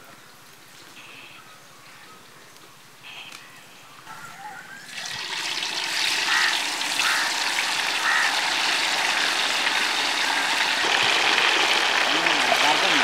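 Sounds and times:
oil sizzling: 0:04.9 - 0:13.0.

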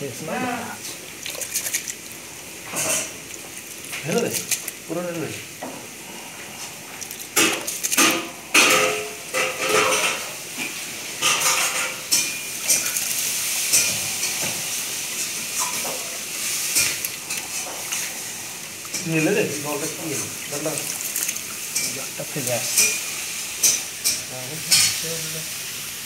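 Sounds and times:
wet splashes: 0:00.9 - 0:05.1, 0:06.7 - 0:08.3, 0:12.7 - 0:13.8, 0:16.4 - 0:23.0.

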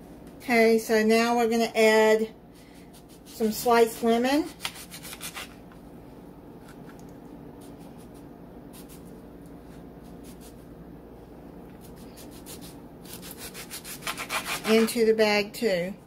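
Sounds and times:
faint steady hum: 0:00.0 - 0:16.0
knife sawing through lemon: 0:11.8 - 0:15.0.

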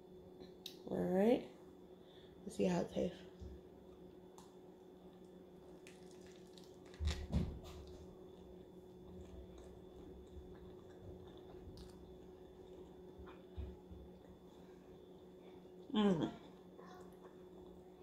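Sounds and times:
faint steady hum: 0:00.0 - 0:18.0
crunch: 0:04.4 - 0:13.0.

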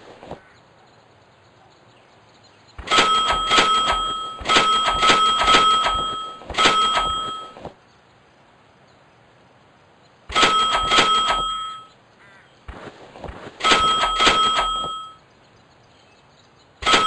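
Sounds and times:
pulsing high tone bursts: 0:02.8 - 0:07.6.

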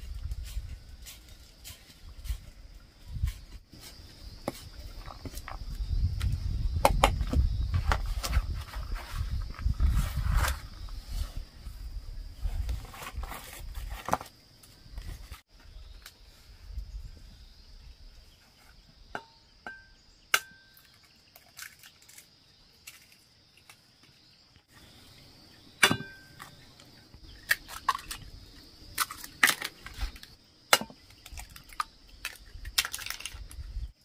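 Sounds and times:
eggs cracked on a metal pot: 0:19.2 - 0:22.1, 0:30.7 - 0:33.5.

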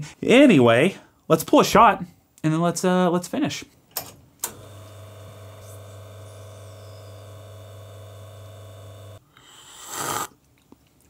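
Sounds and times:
espresso machine pump humming: 0:04.5 - 0:09.2.

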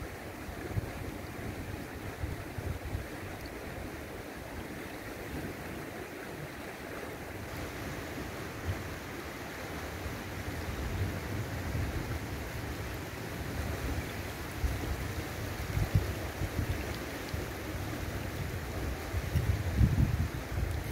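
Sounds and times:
river rushing over pebbles: 0:00.0 - 0:20.9
wind buffeting microphone: 0:10.3 - 0:20.9.

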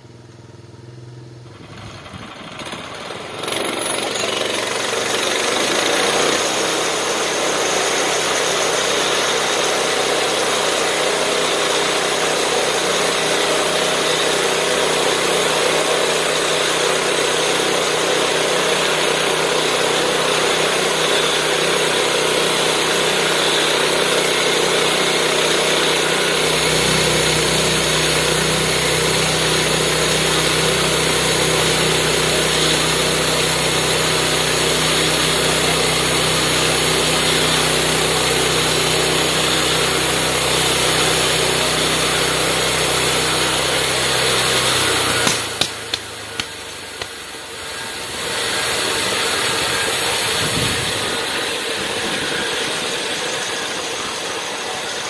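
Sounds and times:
small gas engine running: 0:00.0 - 0:55.0
bandsaw blade cutting log: 0:01.8 - 0:55.0.

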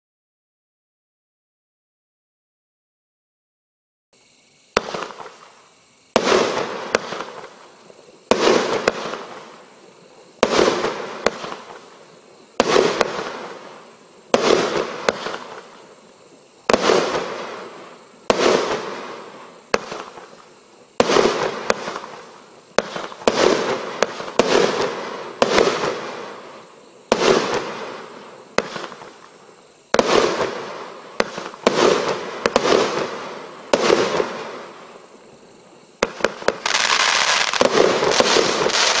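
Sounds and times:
firework cake bangs: 0:06.1 - 0:07.6, 0:10.4 - 0:11.8, 0:14.3 - 0:15.7, 0:16.6 - 0:17.6, 0:21.0 - 0:26.4, 0:29.9 - 0:34.6, 0:36.0 - 0:39.0.

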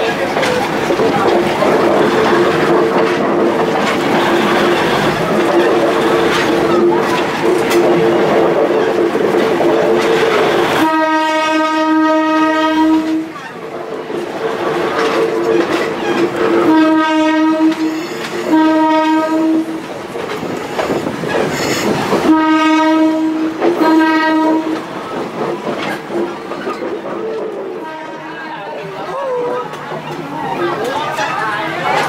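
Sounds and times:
train wheels rumbling: 0:00.0 - 0:32.0
train horn blasts: 0:10.6 - 0:13.3, 0:16.6 - 0:19.9, 0:21.7 - 0:24.9, 0:27.8 - 0:28.6.

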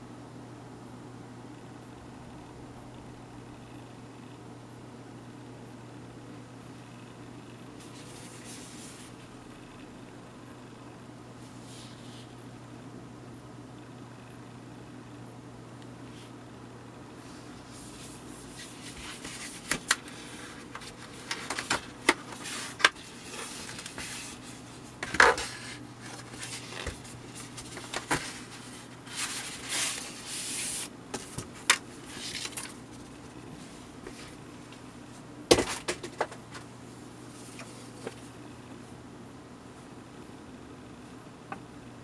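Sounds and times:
faint steady hum: 0:00.0 - 0:42.0
cardboard rustling and scraping: 0:07.8 - 0:09.2, 0:17.5 - 0:33.1.

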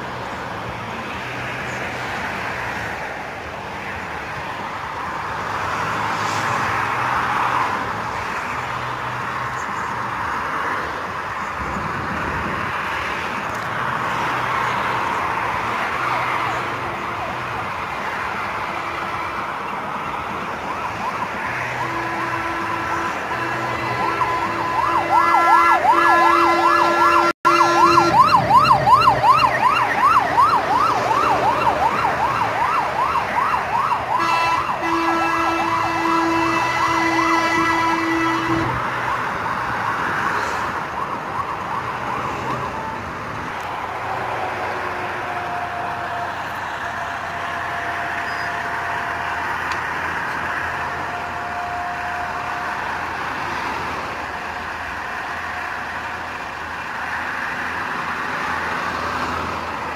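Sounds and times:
traffic noise: 0:00.0 - 0:59.9
fire engine siren yelping: 0:14.1 - 0:59.9
low steady horn tone: 0:21.7 - 0:28.4, 0:34.1 - 0:38.8, 0:44.8 - 0:49.7, 0:50.3 - 0:53.2.

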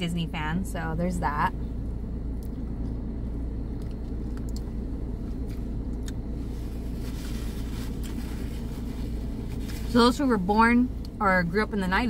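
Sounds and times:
car idling: 0:00.0 - 0:12.0
chewing clicks: 0:03.7 - 0:04.7
paper napkin rustling: 0:06.4 - 0:10.2.

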